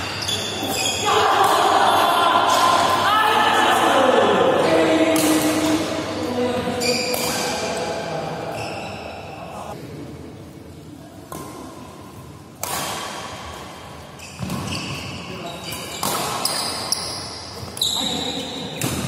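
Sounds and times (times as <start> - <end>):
rackets striking shuttlecock: 12.6 - 13.6, 15.8 - 17.0.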